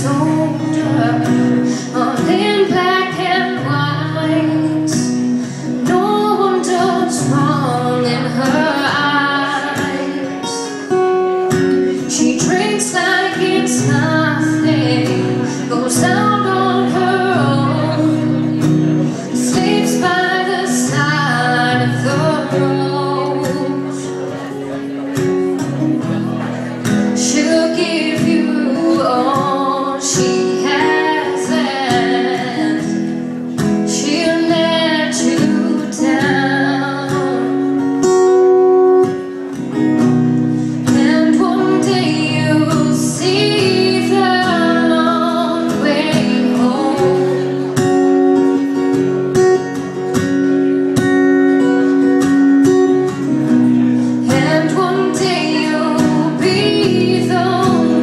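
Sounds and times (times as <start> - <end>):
strummed acoustic guitar: 0.0 - 58.0
woman singing into a microphone: 0.0 - 58.0.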